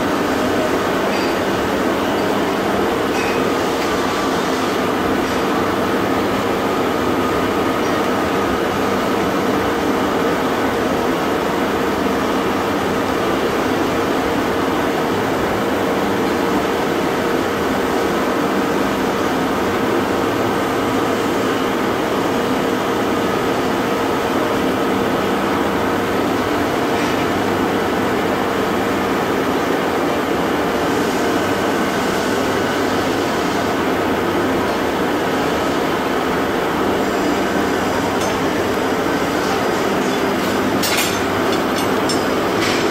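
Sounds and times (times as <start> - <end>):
loud foundry machinery rush: 37.2 - 42.9.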